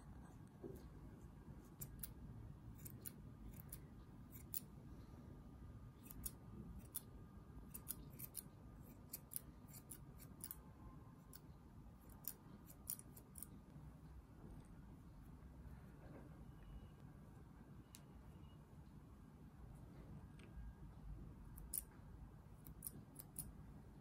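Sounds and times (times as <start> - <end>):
scissors snipping fur: 1.6 - 4.7, 6.0 - 10.6, 11.2 - 13.6, 21.6 - 22.0, 22.6 - 23.5.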